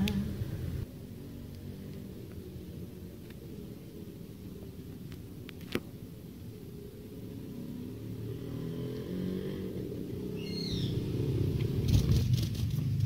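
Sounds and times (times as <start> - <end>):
low hum: 0.0 - 13.0
bird chirping: 10.2 - 11.4.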